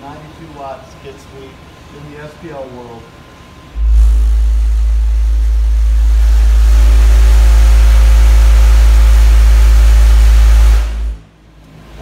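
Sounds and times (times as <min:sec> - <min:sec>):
loud low bass tone from subwoofers: 0:03.0 - 0:12.0
buzzing rattle: 0:03.7 - 0:11.2.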